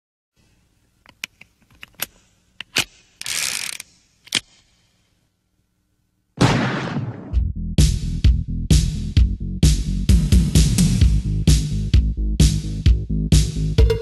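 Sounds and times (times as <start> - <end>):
synthwave music: 13.5 - 14.0.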